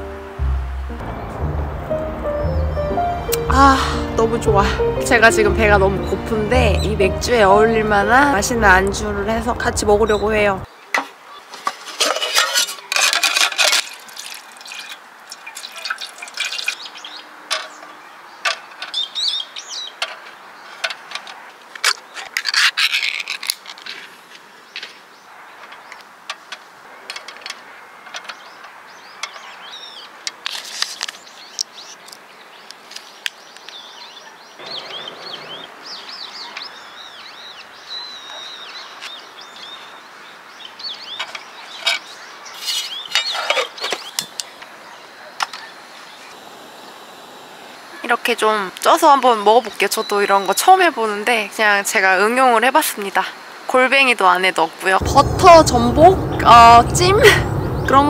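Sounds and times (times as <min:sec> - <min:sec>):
birds chirping: 0:00.0 - 0:11.5, 0:31.1 - 0:47.0, 0:55.0 - 0:58.0.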